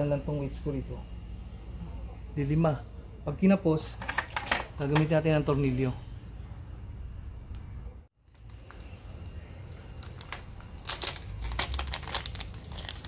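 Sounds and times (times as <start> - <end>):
crackles and clicks: 8.2 - 13.0
plastic packet crinkling: 8.2 - 13.0.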